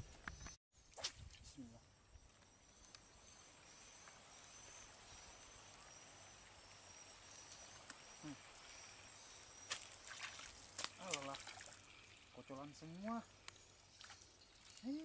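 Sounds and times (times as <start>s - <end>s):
insect chirping: 0.1s - 15.0s
thin high drone: 1.5s - 10.2s.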